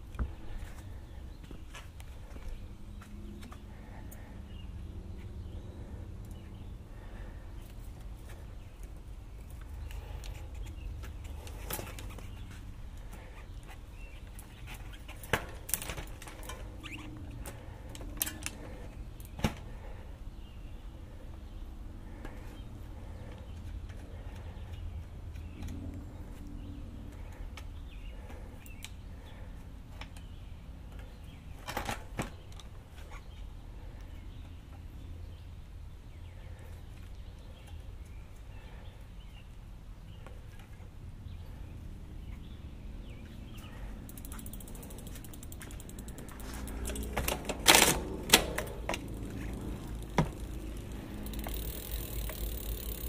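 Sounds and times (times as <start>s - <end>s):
metallic clicks of bike wheel: 14.3s - 18.6s, 43.6s - 53.0s
steady low rumble: 41.5s - 53.0s.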